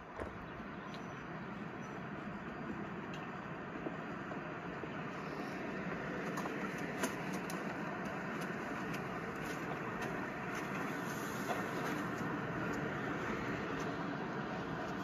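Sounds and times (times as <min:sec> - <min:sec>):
faint clicks: 0:03.0 - 0:03.3.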